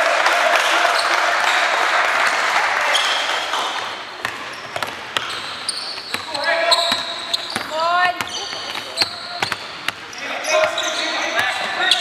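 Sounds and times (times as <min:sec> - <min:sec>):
court and crowd noise: 0:00.0 - 0:12.0
basketball bouncing on wooden floor: 0:04.2 - 0:10.0.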